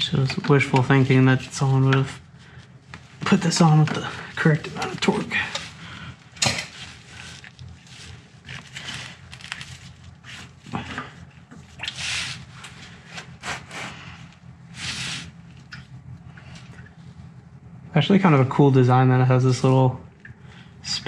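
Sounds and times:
low steady hum: 0.0 - 21.0
gloved hand scraping and rustling: 0.3 - 15.6.

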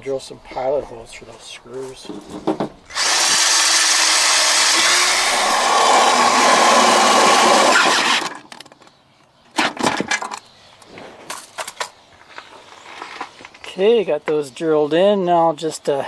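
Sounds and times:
cordless drill drilling steel: 2.9 - 8.4.

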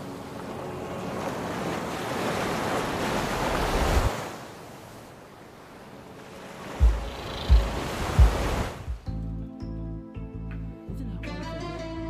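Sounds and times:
ocean waves washing on rocky shore: 0.0 - 8.9.

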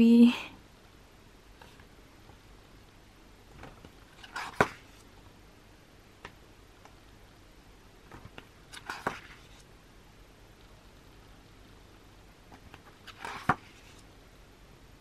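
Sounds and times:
pages rustling: 3.5 - 5.1, 8.1 - 9.7, 12.5 - 14.1
paper flap: 8.1 - 9.6, 12.6 - 14.0.

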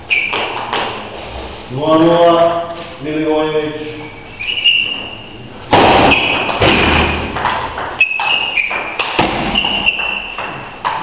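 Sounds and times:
loud thump: 5.7 - 7.4.

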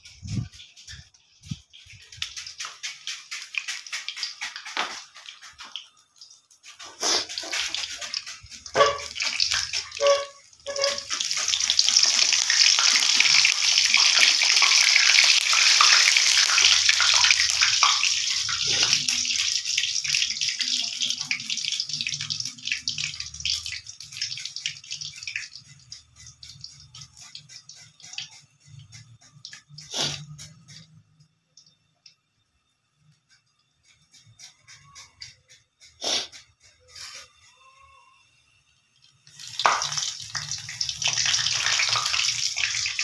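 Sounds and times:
loud sizzling hiss: 6.8 - 8.8, 29.8 - 30.9, 34.4 - 37.2.

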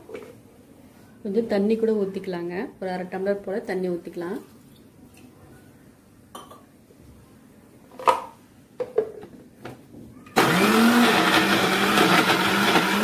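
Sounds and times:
mixer grinder motor starting: 10.4 - 13.0.

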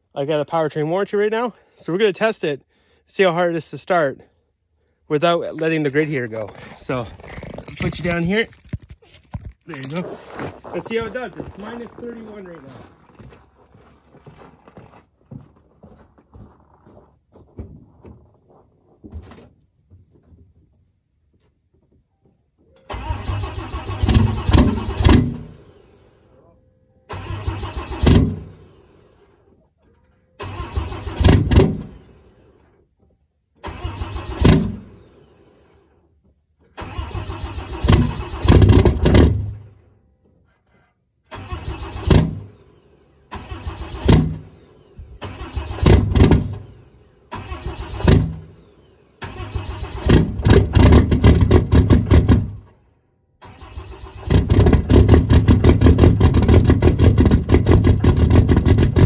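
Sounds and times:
diesel engine cranking and starting: 4.3 - 14.9, 22.8 - 59.0.

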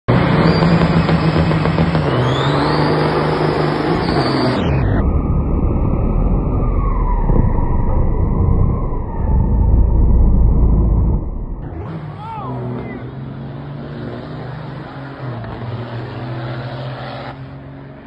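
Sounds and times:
diesel truck engine revving: 0.1 - 18.0
engine whistle: 0.2 - 5.0.

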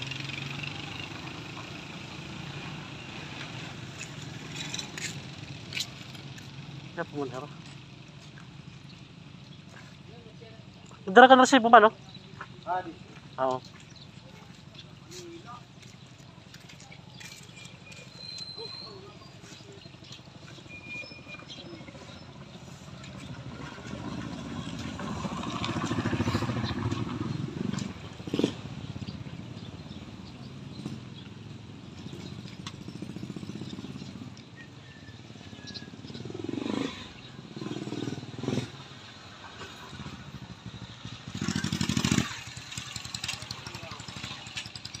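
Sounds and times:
motorcycle engine running: 21.3 - 45.0.

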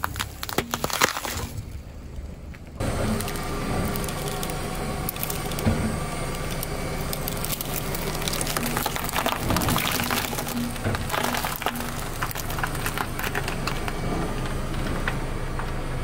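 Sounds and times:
wooden skewers snapping: 0.0 - 1.5, 3.1 - 14.0
car tyre rolling slowly: 0.0 - 16.0.

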